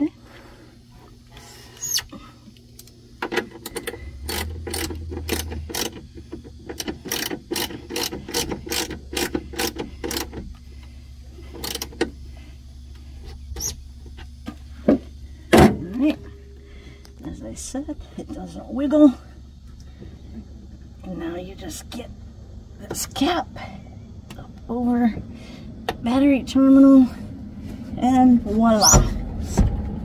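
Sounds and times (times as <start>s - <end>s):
socket wrench ratchet clicks: 3.7s - 6.0s, 6.7s - 10.4s, 11.6s - 12.1s.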